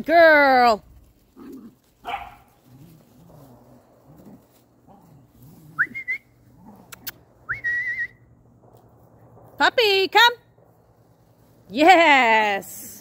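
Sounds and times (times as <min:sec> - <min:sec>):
whistled recall signals: 0:05.8 - 0:06.3, 0:07.5 - 0:08.3.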